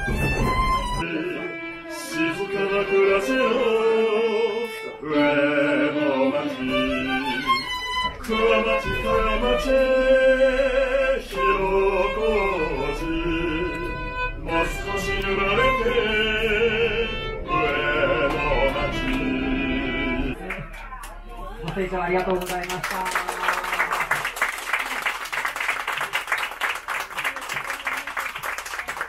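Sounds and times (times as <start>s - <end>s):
train rumble: 0.0s - 1.0s, 6.5s - 22.5s
violin slow melody: 0.0s - 20.4s.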